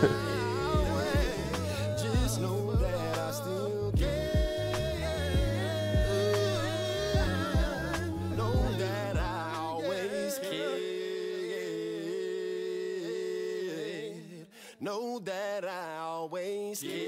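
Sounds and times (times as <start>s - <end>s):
bass beat: 0.0s - 9.8s
song with sung vocal: 0.0s - 17.0s.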